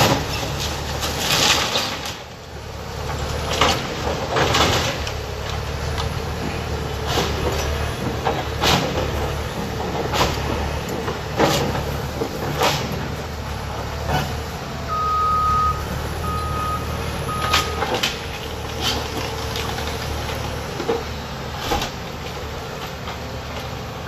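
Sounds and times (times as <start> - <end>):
splintering wood and falling debris: 0.0 - 2.4, 3.1 - 9.2
excavator diesel engine running: 0.0 - 24.0.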